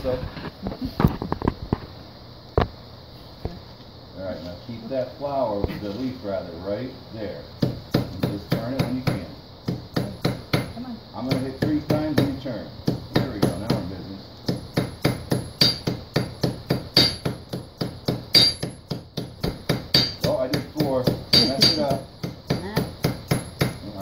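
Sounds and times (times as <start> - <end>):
hammer blows on metal anvil: 14.8 - 16.4, 17.0 - 18.8, 19.8 - 22.0.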